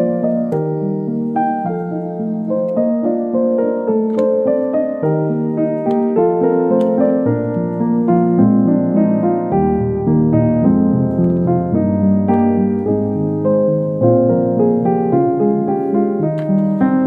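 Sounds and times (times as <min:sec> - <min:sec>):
piano-like keyboard music: 0:00.0 - 0:17.0.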